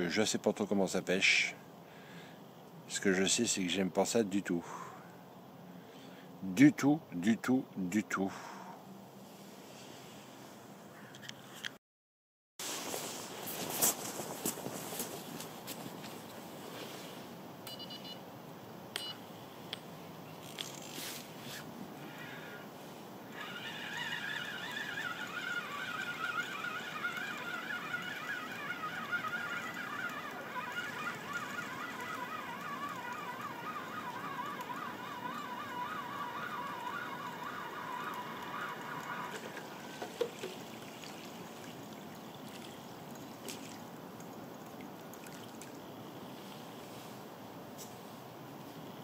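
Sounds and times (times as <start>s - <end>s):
fishing reel whirring: 20.4s - 21.0s, 23.3s - 43.8s
reel click: 23.3s - 40.6s.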